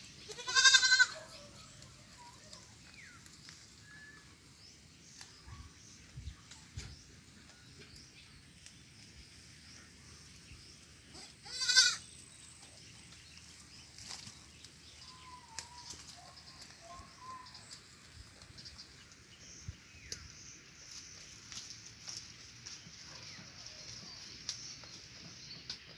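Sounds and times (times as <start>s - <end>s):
goat kid bleating: 0.3s - 1.4s, 11.1s - 12.0s.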